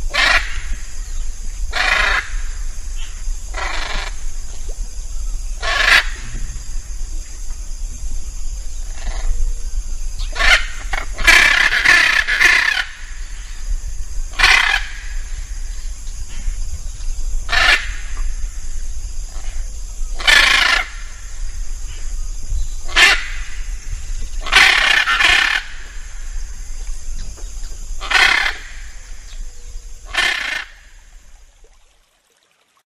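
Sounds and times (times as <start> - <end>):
steady high hiss: 0.0 - 32.4
macaw calling loudly: 0.1 - 0.8, 1.7 - 2.4, 5.6 - 6.2, 10.3 - 13.1, 14.4 - 15.1, 17.5 - 18.2, 20.2 - 21.1, 22.9 - 23.5, 24.4 - 26.0, 28.0 - 29.0, 30.1 - 30.9.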